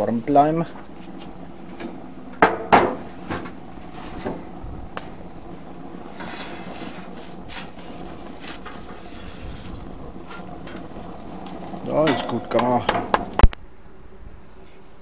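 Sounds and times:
spatula scraping: 0:06.0 - 0:13.2.

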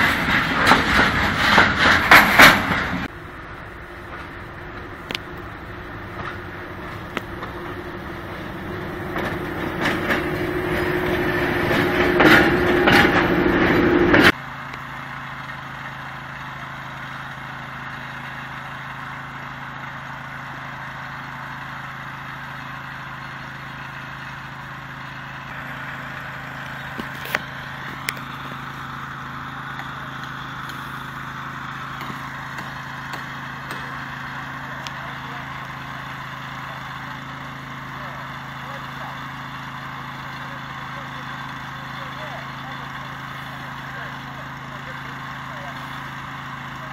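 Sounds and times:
diesel locomotive engine: 0:00.0 - 0:46.9
small engine running: 0:00.0 - 0:46.9.

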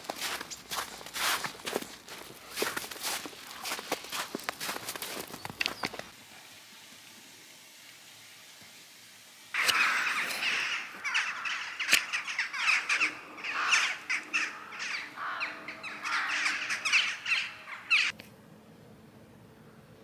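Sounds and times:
flock of birds calling: 0:09.6 - 0:18.1.

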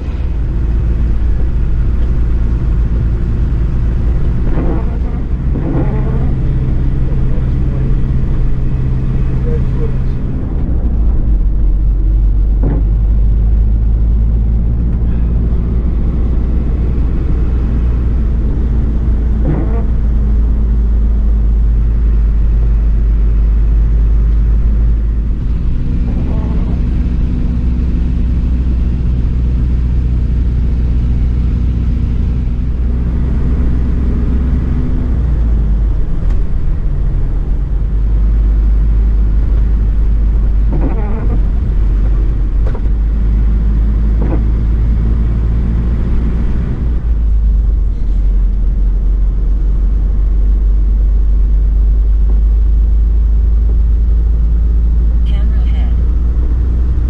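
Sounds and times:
truck diesel engine rumbling: 0:00.0 - 0:57.0.

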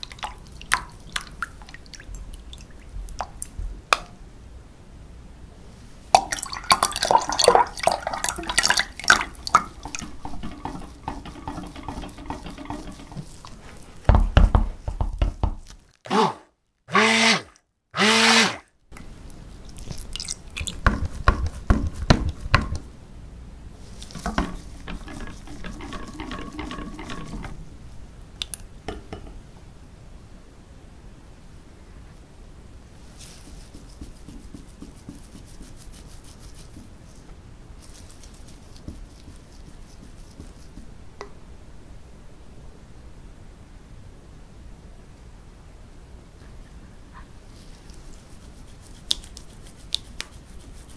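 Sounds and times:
liquid sloshing in glass jug: 0:00.0 - 0:03.6, 0:06.1 - 0:14.3, 0:19.7 - 0:22.8, 0:23.8 - 0:27.7
stick blender motor whine: 0:16.1 - 0:16.3, 0:16.9 - 0:18.6.

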